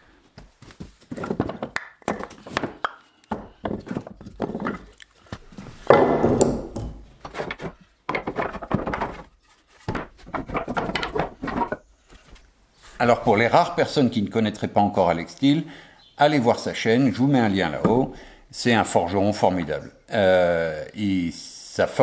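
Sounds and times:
wooden knocks and clatter: 0:00.7 - 0:12.4.

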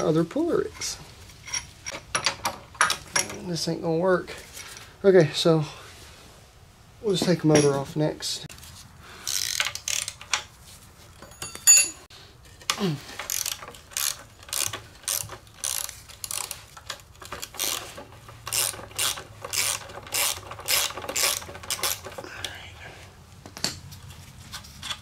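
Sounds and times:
socket ratchet clicking: 0:09.3 - 0:10.4, 0:13.2 - 0:22.1
metal clink: 0:11.2 - 0:12.0.

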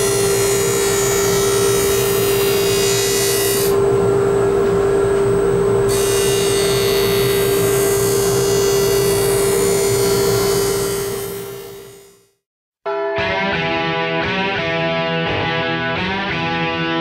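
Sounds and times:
sharpening machine humming: 0:00.0 - 0:12.4.

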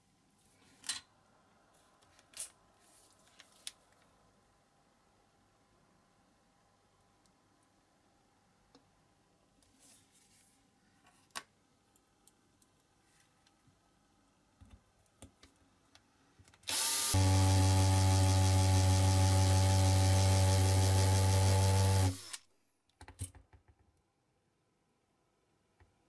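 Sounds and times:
cordless drill running: 0:16.7 - 0:22.5.

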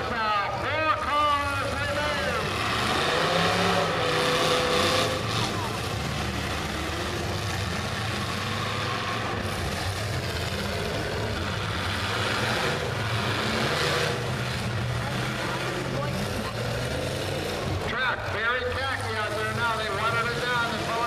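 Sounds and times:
car engines idling: 0:00.0 - 0:21.0.

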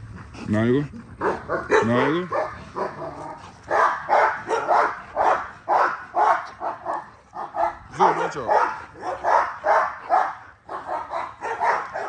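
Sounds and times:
dog barking: 0:01.2 - 0:12.0.

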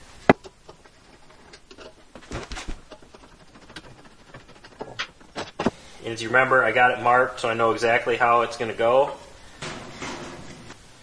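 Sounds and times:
tools tapping and knocking: 0:00.3 - 0:05.8.

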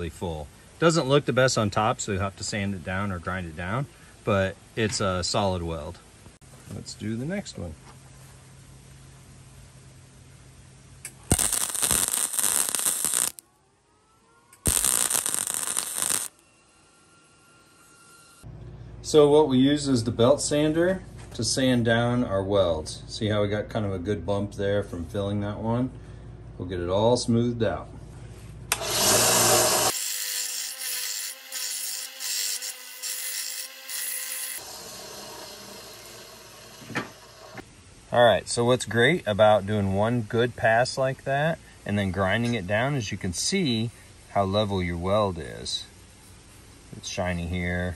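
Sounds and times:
welder arc crackling: 0:11.0 - 0:13.4, 0:14.6 - 0:16.4, 0:28.7 - 0:37.6
belt sander grinding metal: 0:14.7 - 0:16.3, 0:28.8 - 0:37.6.

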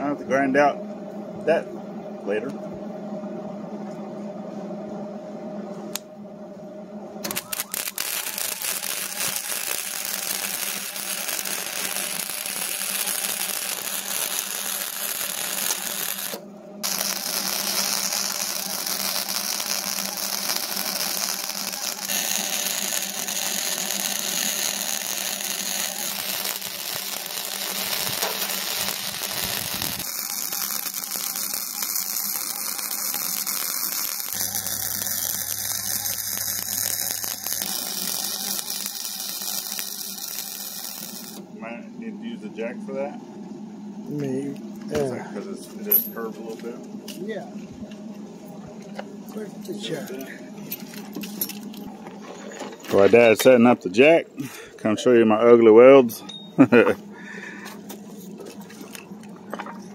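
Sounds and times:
arc welding crackle: 0:07.2 - 0:41.4, 0:49.3 - 0:54.2.

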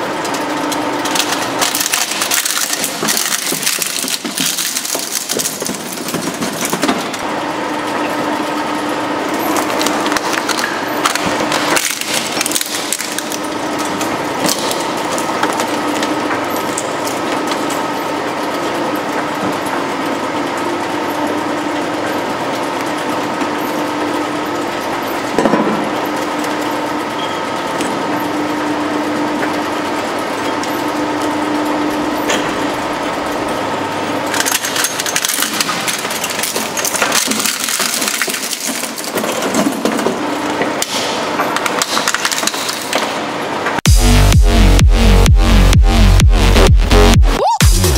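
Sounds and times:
shredder crunching plastic: 0:00.0 - 0:07.3, 0:09.4 - 0:17.8, 0:34.2 - 0:43.2
shredder humming: 0:00.0 - 0:26.5, 0:28.3 - 0:41.0.

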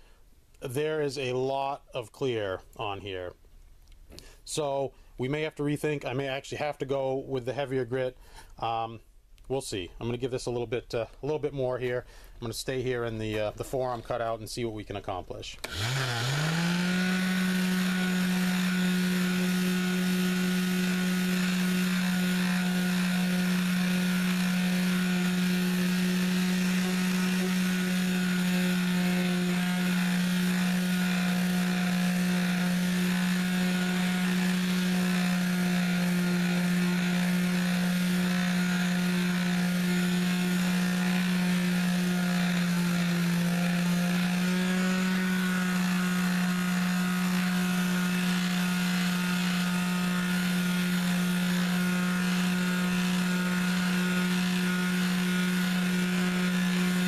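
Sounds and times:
orbital sander running: 0:15.6 - 0:57.0.

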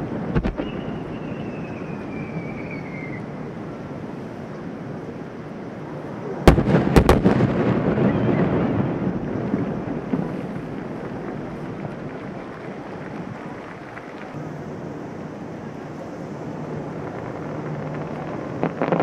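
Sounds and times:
low rolling rumble: 0:00.0 - 0:19.0
firework shells bursting: 0:00.3 - 0:01.7, 0:17.1 - 0:19.0
falling firework whistle: 0:00.4 - 0:03.3, 0:06.5 - 0:09.2.

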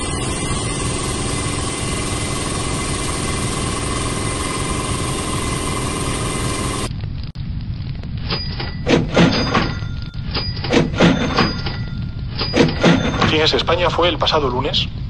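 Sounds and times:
engine running with rumble and hum: 0:00.0 - 0:06.9.

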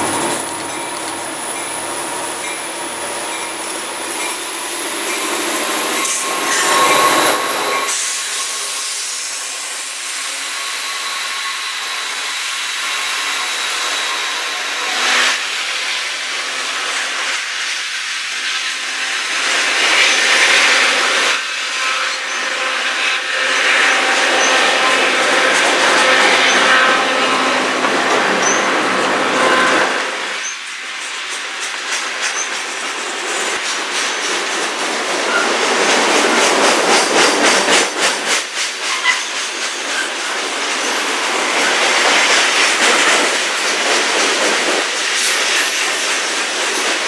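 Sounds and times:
diesel locomotives working: 0:00.0 - 0:47.0
wheel squeals: 0:02.4 - 0:09.0, 0:23.5 - 0:30.7, 0:38.8 - 0:40.2.

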